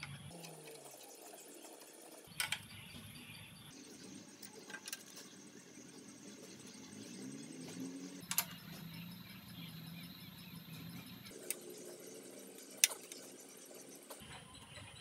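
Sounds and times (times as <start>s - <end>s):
spanner metallic clicks: 8.2s - 8.8s.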